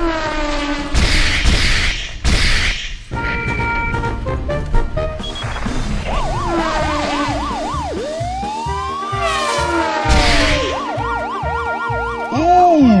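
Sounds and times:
background music with steady beat: 3.1s - 13.0s
siren wailing: 5.2s - 13.0s.

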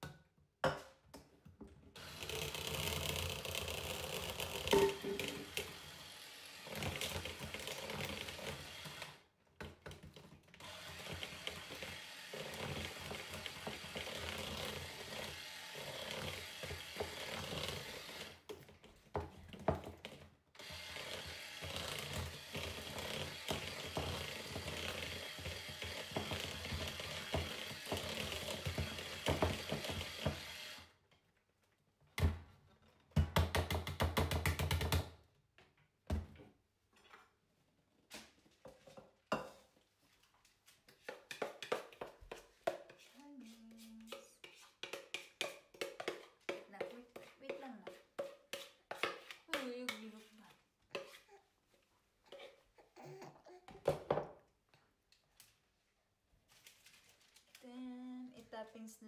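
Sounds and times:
electric hand mixer whirring: 2.0s - 9.3s, 10.6s - 18.5s, 20.6s - 31.0s.

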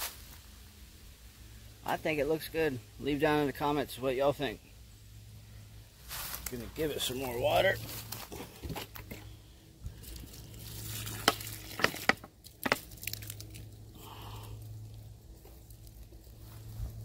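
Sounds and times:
water trickling onto soil: 6.0s - 8.3s, 9.9s - 17.0s
sharp crackles: 9.9s - 17.0s.

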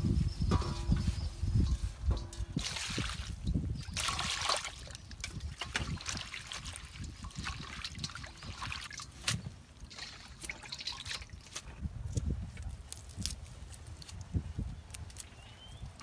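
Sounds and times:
hands swishing leaves in water: 4.0s - 11.7s.

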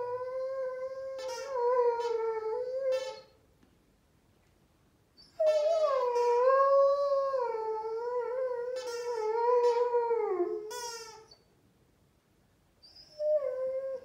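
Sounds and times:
dog squealing with squeaky toy: 1.0s - 3.3s, 5.2s - 7.1s, 8.6s - 11.5s.

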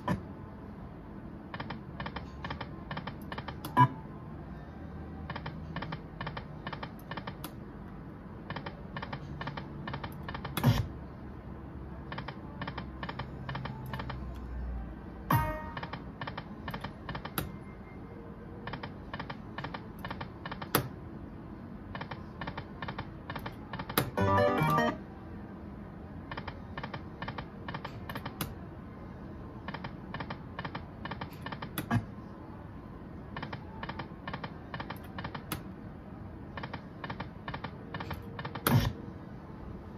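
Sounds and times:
slot machine reels ticking: 22.5s - 25.0s.

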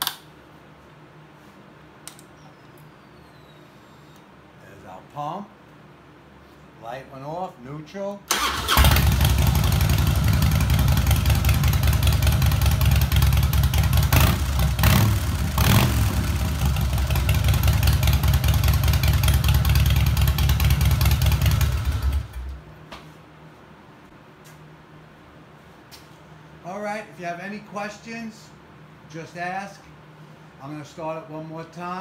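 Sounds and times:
motorcycle engine idling and revving: 8.7s - 22.6s.

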